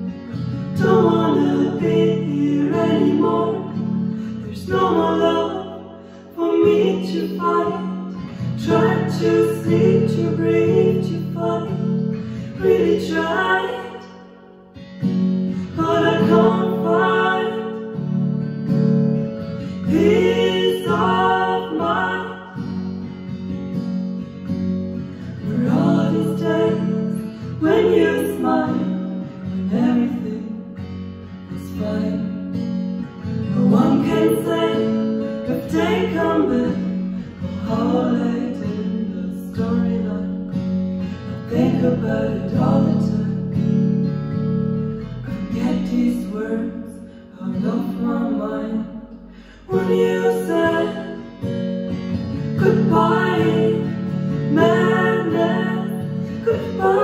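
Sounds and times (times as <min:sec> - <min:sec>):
acoustic guitar strumming: 0:00.0 - 0:57.0
wordless female vocal: 0:00.4 - 0:14.3, 0:15.5 - 0:18.1, 0:19.7 - 0:22.7, 0:25.2 - 0:30.7, 0:31.5 - 0:32.4, 0:33.4 - 0:40.5, 0:41.2 - 0:43.5, 0:45.3 - 0:51.5, 0:52.4 - 0:57.0
harmony voices: 0:00.7 - 0:14.4, 0:15.5 - 0:18.0, 0:19.6 - 0:22.6, 0:25.2 - 0:29.1, 0:49.6 - 0:51.6, 0:52.2 - 0:57.0.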